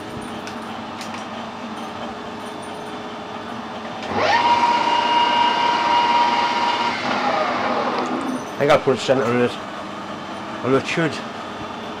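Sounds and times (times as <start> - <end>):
metal lathe whining: 4.0 - 9.1.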